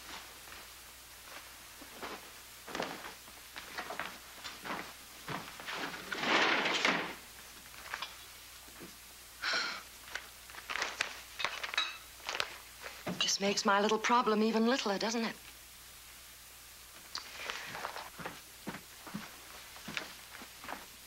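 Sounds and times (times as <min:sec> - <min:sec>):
footsteps: 0:00.0 - 0:08.1, 0:17.2 - 0:21.0
newspaper rustling: 0:10.0 - 0:13.1.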